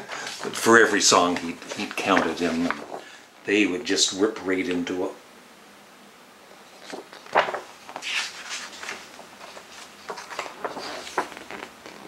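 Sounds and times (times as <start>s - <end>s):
paper and cardboard rustling: 0.0s - 3.2s, 6.7s - 12.0s.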